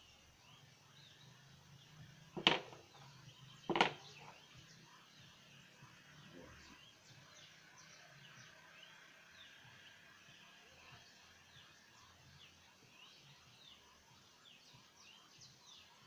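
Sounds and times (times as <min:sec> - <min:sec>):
chess pieces knocking on board: 0:02.4 - 0:02.9, 0:03.7 - 0:04.3.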